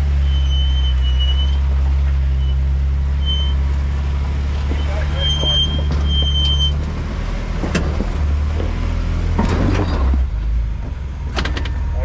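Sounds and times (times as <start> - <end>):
vehicle engine low drone: 0.0 - 12.0
high beep-like tone: 3.2 - 3.6
vehicle knocks and rattles: 4.2 - 12.0.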